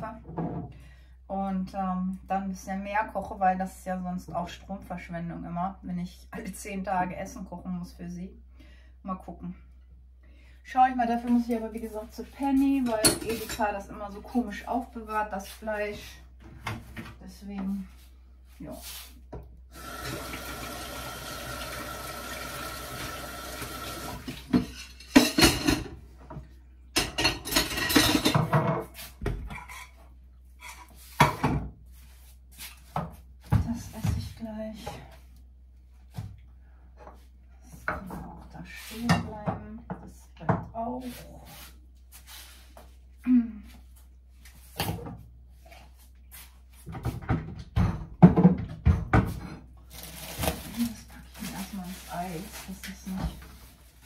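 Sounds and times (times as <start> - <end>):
kitchen tap running: 19.7 - 25.6
dishes and cutlery clattering: 24.5 - 26.0, 27.0 - 30.0.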